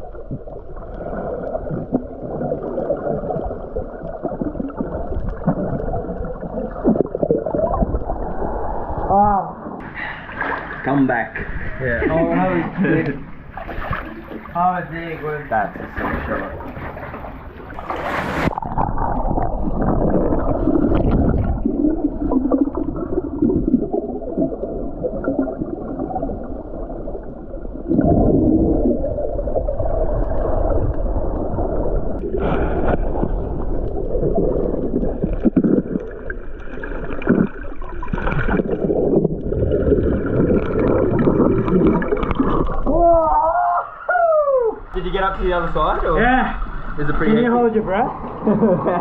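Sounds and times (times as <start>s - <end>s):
exhaled bubbles: 0.0s - 14.6s, 15.9s - 49.0s
underwater rumble and gurgling: 0.0s - 44.0s, 44.7s - 49.0s.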